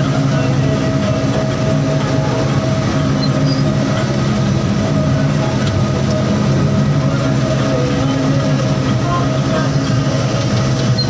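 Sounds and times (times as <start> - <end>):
combine harvester running: 0.0 - 11.0.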